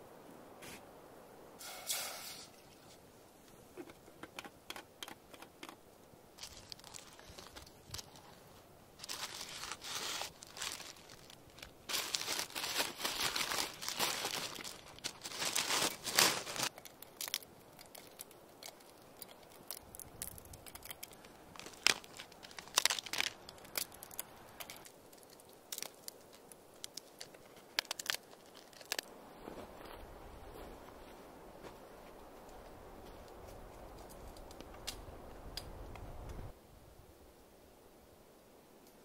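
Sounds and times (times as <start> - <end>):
wax sheets crinkling and rustling: 9.0 - 16.7.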